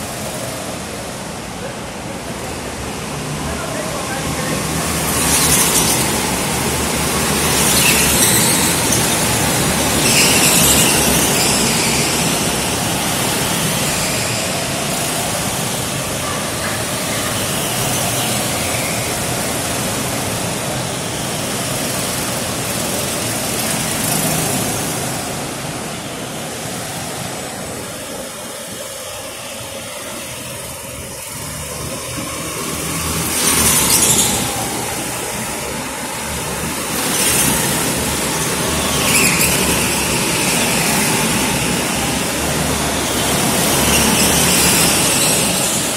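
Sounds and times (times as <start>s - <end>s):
go-kart engines racing: 0.0s - 45.9s
tyres squealing: 5.2s - 19.6s, 37.0s - 45.9s.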